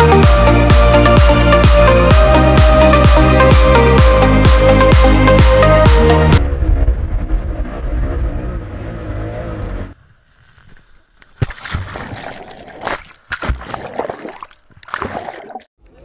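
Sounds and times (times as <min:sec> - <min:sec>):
water splashes and buffeting: 0:10.2 - 0:16.0.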